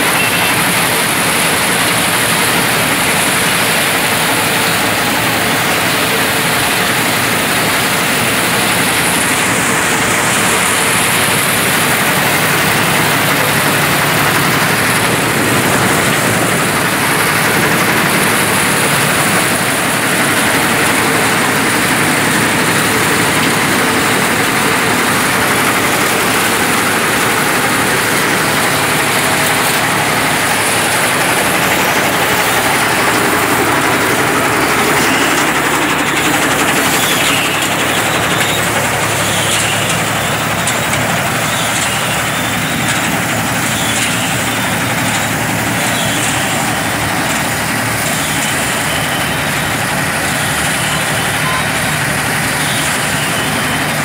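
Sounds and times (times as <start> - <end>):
tractor diesel engine running: 0.0 - 54.0.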